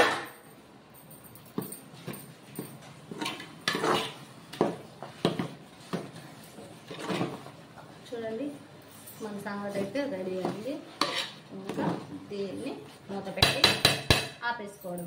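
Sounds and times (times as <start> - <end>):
metal ladle scraping pot: 11.0 - 11.4.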